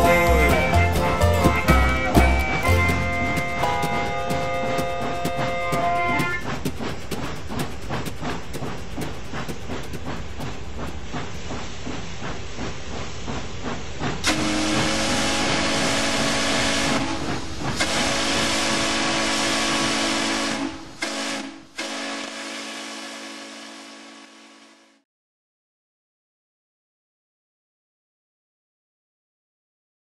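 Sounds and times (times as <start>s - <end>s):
steam locomotive chugging: 0.0s - 24.8s
steam whistle blasts: 14.3s - 17.2s, 17.8s - 25.0s.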